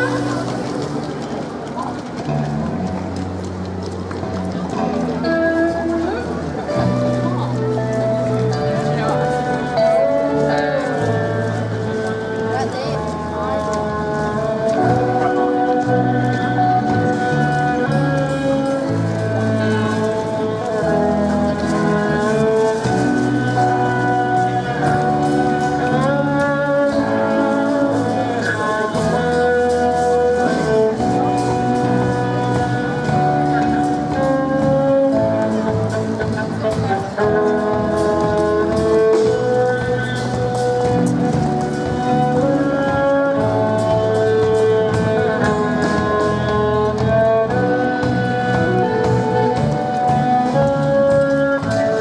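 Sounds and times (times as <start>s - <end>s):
bass guitar line: 0.0s - 52.0s
violin sliding melody: 4.2s - 52.0s.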